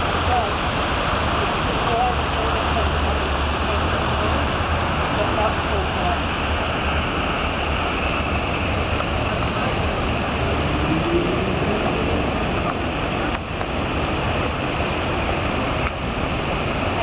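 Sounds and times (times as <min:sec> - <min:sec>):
fountain water splashing: 0:00.0 - 0:17.0
low rumble: 0:06.0 - 0:16.6.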